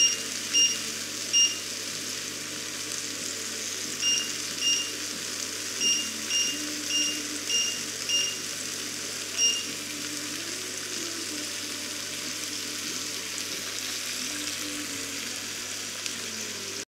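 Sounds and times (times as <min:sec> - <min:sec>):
short electronic beeps: 0:00.0 - 0:00.8, 0:01.4 - 0:01.6, 0:04.0 - 0:05.0, 0:05.8 - 0:08.4, 0:09.4 - 0:09.7
meat sizzling in a grill pan: 0:00.0 - 0:16.8.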